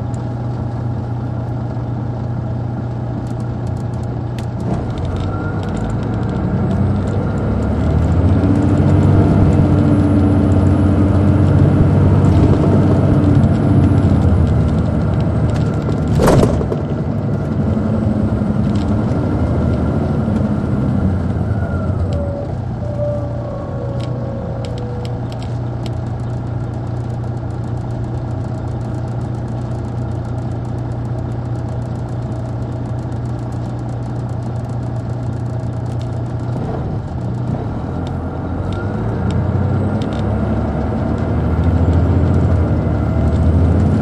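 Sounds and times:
bus diesel engine: 0:00.0 - 0:44.0
high whine: 0:04.4 - 0:26.8.

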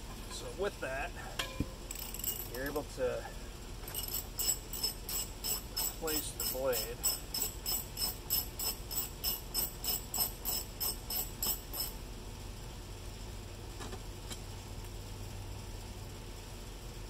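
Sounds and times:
wrench ratchet clicking: 0:01.9 - 0:02.6, 0:03.9 - 0:12.0.

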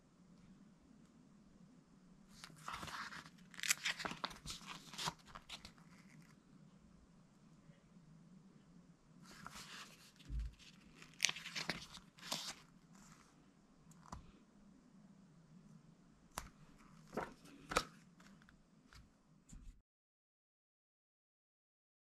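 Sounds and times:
paper pages rustling: 0:02.3 - 0:06.4, 0:09.3 - 0:13.3, 0:16.4 - 0:19.0.

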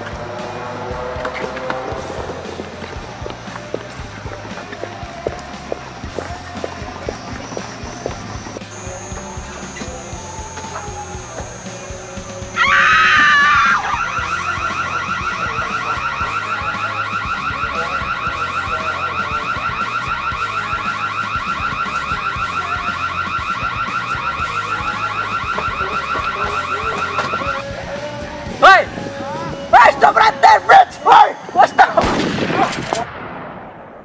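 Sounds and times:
car alarm warbling: 0:05.3 - 0:27.6.

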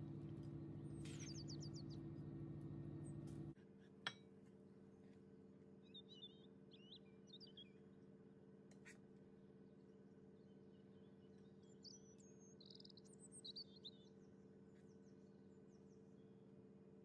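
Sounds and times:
low steady hum: 0:00.0 - 0:08.1
faint bird twittering: 0:00.8 - 0:03.6, 0:05.8 - 0:07.9, 0:10.4 - 0:16.3.

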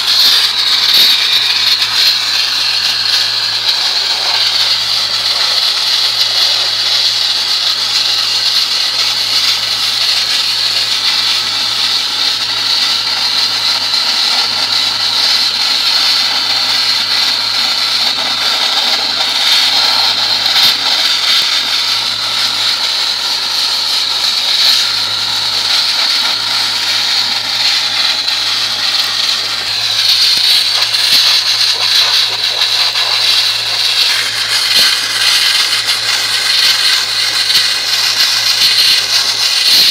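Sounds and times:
nozzle spraying water and sand: 0:00.0 - 0:39.9.

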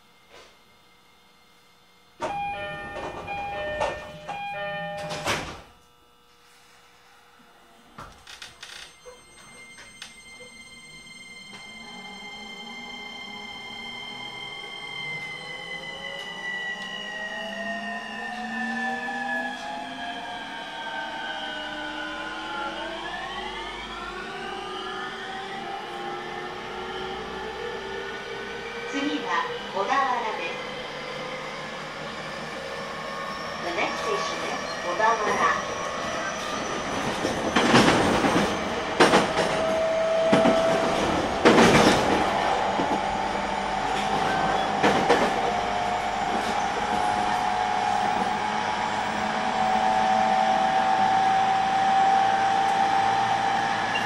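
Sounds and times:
doors closing thud: 0:02.2 - 0:05.7
train door chime: 0:02.2 - 0:05.7, 0:08.5 - 0:19.8, 0:33.3 - 0:53.1.

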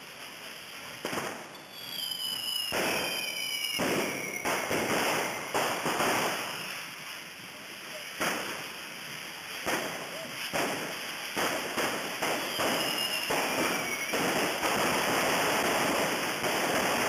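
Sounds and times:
street rockets hissing: 0:00.0 - 0:17.0
falling whistle: 0:01.5 - 0:05.6, 0:12.4 - 0:14.3.

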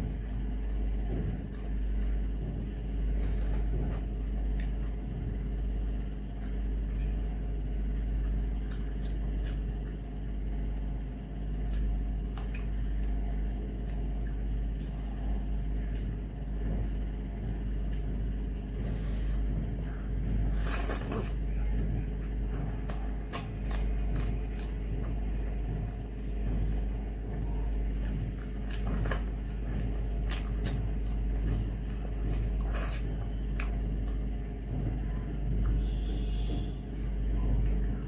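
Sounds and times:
mouth eating sounds: 0:08.2 - 0:10.1, 0:19.4 - 0:26.0, 0:27.0 - 0:34.4.

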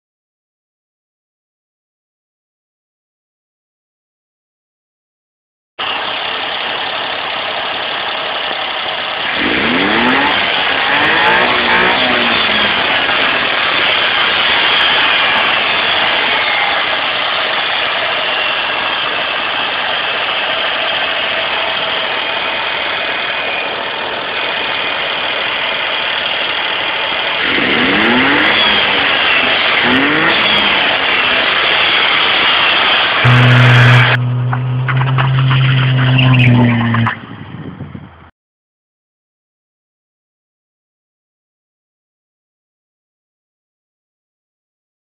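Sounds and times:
car engine revving at intake: 0:09.2 - 0:17.0, 0:27.2 - 0:36.0.

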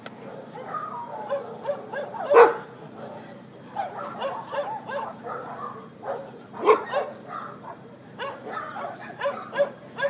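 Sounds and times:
dog barking and yelping: 0:00.2 - 0:10.0.

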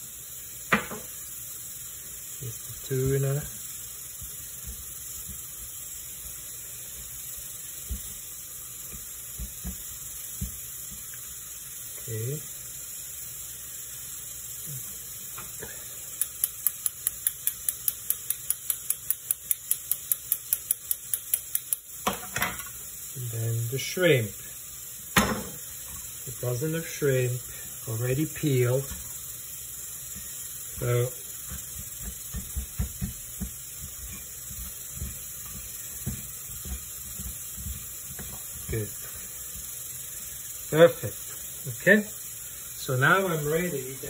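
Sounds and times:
steady hiss: 0:00.0 - 0:44.0
spoon clicking on metal sieve: 0:16.2 - 0:21.8
hands patting shrimp in flour: 0:30.8 - 0:39.7.

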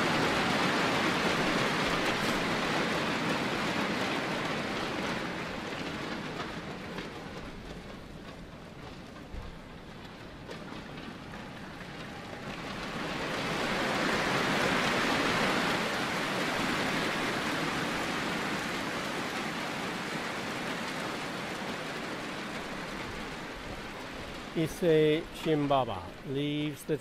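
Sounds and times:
crowd applauding: 0:00.0 - 0:03.1.

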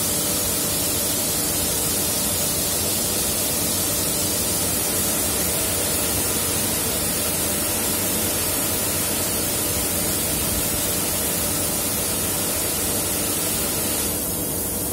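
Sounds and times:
car wash spray hissing: 0:04.4 - 0:14.6.

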